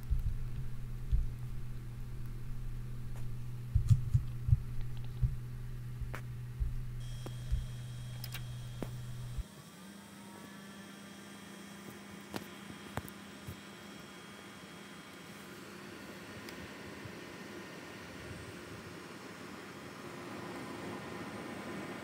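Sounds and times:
thin high whine: 0.0s - 16.4s
computer fans humming: 0.0s - 22.0s.

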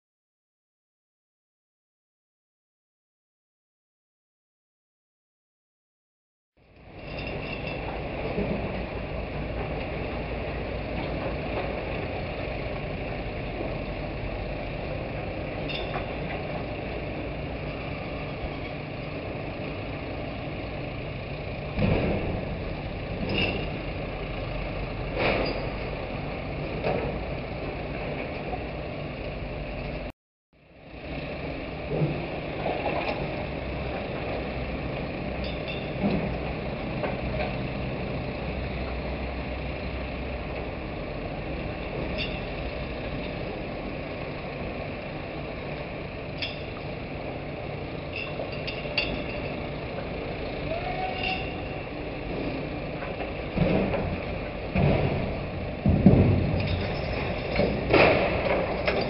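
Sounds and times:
crane engine hum: 6.6s - 59.0s
metal clanks and knocks: 15.6s - 16.4s, 21.7s - 22.6s, 23.2s - 23.9s, 25.1s - 25.9s, 35.4s - 37.6s, 42.0s - 42.6s, 46.4s - 46.8s, 48.1s - 49.6s, 53.0s - 59.0s.

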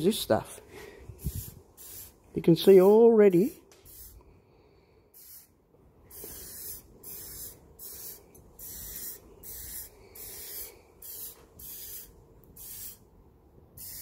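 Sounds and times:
aerosol spray hissing bursts: 1.2s - 2.2s, 3.9s - 4.2s, 5.2s - 5.5s, 6.1s - 13.0s, 13.8s - 14.0s.

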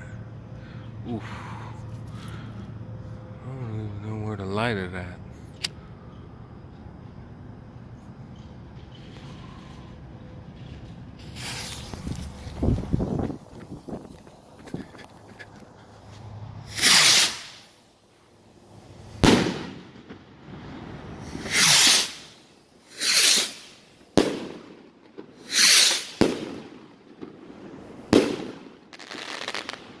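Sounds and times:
rockets hissing whooshes: 8.9s - 14.1s, 16.6s - 17.9s, 18.6s - 30.0s
sharp firework bangs: 16.7s - 17.7s, 19.2s - 30.0s.

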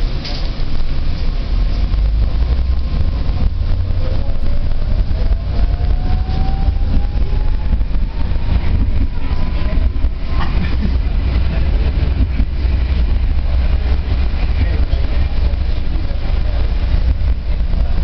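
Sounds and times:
tram wheels rumbling on rails: 0.0s - 18.0s
traction motor whine rising: 1.9s - 10.2s.

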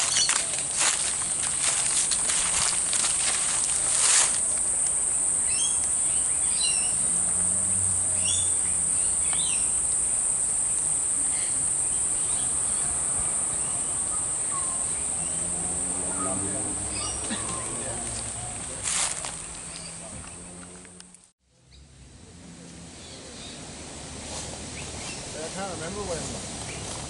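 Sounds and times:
footsteps through dry leaves: 0.0s - 4.9s, 17.3s - 20.1s
high-pitched insect drone: 0.0s - 20.8s.

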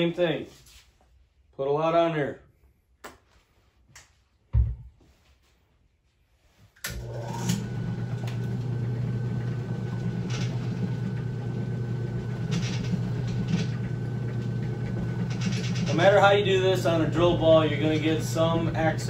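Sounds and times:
electric motor humming: 6.9s - 19.0s
cloth polishing spinning ball: 7.0s - 19.0s.

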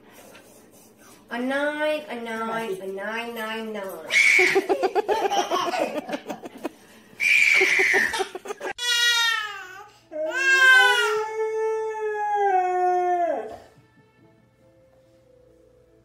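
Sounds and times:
toddler squealing: 7.2s - 9.4s
baby crying: 7.2s - 13.5s
dog howling: 10.6s - 13.7s.

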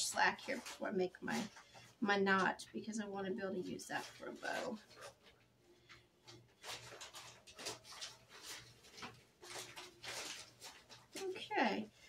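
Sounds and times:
twine rustling and scraping: 0.0s - 2.6s, 3.4s - 11.8s.

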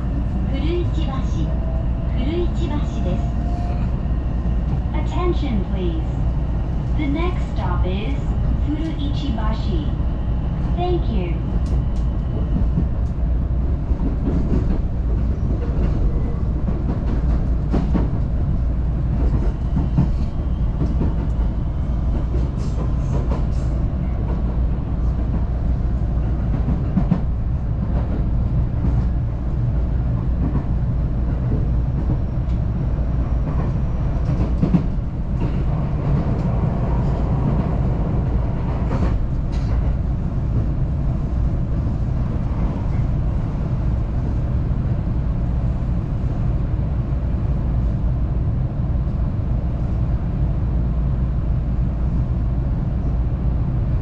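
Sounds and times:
train wheels rumbling on rail: 0.0s - 54.0s.

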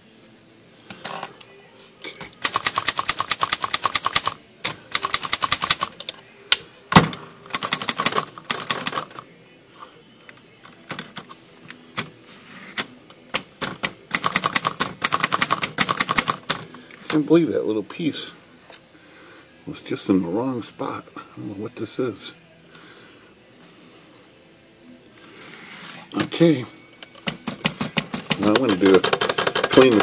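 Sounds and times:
typewriter keystrokes clacking: 2.4s - 5.9s, 7.5s - 9.1s, 14.1s - 16.5s, 27.6s - 30.0s.

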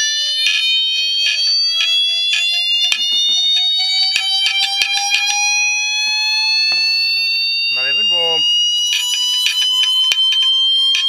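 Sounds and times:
sharp clicking beats: 0.0s - 7.2s, 7.8s - 11.0s
shrill rising tone: 0.0s - 11.0s.

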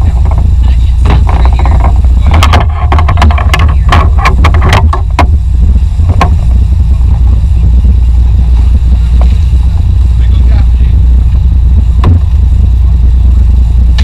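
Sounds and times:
sharp clicks and knocks: 0.0s - 5.4s, 6.1s - 6.5s, 12.0s - 12.3s
boat engines rumbling: 0.0s - 14.0s
wind on microphone: 0.0s - 14.0s.

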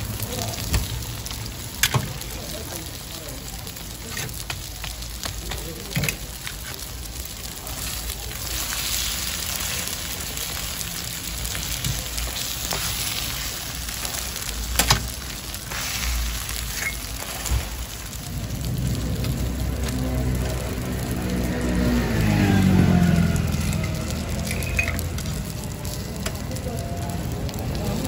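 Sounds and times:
pancakes sizzling in oil: 0.0s - 28.0s
metal tongs clicking on griddle: 14.0s - 15.2s.

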